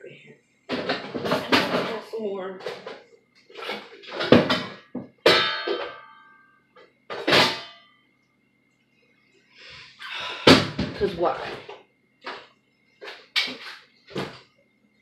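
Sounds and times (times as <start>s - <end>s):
kitchenware knocks and clangs: 0.7s - 2.0s, 2.6s - 6.4s, 7.1s - 7.8s.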